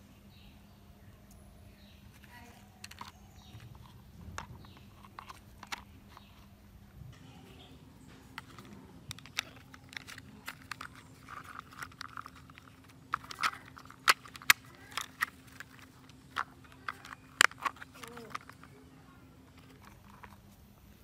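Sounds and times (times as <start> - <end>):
plastic toy parts clicking and rattling: 2.1 - 6.5, 8.2 - 20.4.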